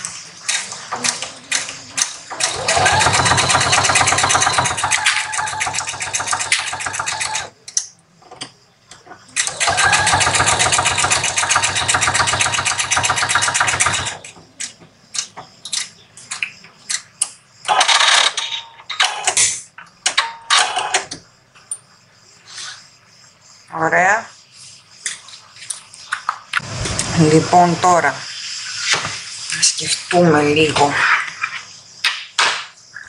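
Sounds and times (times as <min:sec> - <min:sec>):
sewing machine stitching: 0:02.4 - 0:07.5.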